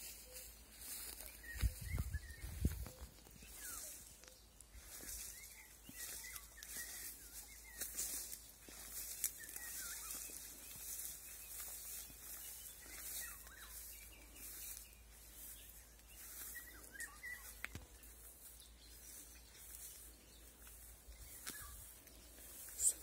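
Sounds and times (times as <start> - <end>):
distant nightingale singing: 0.0 - 23.0.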